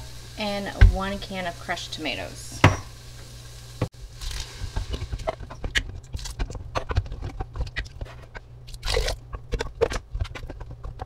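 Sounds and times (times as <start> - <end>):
wet squelches of stirring: 4.2 - 11.0.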